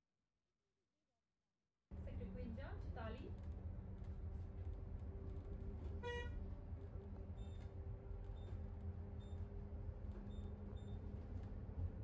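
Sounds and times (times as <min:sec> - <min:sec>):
bus engine and road rumble: 0:01.9 - 0:12.0
vehicle horn toot: 0:06.0 - 0:06.4.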